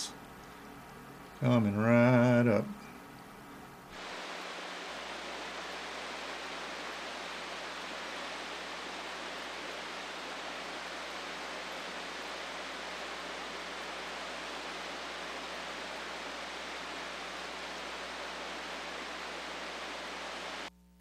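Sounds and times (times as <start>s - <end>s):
waterfall rushing: 3.9s - 20.7s.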